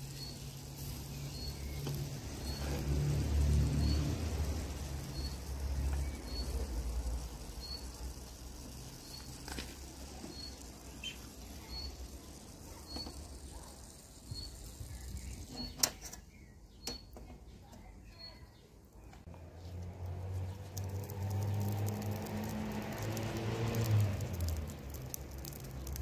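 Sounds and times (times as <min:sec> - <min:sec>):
bird chirping: 0:00.0 - 0:02.8, 0:03.6 - 0:19.7.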